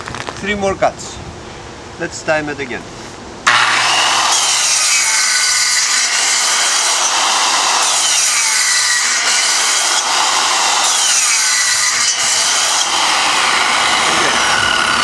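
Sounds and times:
circular saw cutting plywood: 3.5s - 15.0s.

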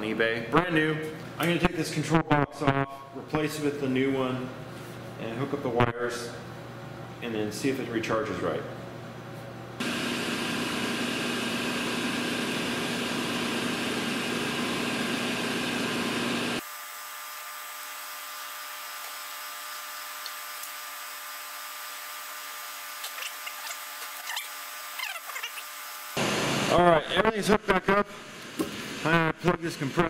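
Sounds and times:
machine running with low hum: 8.2s - 30.0s.

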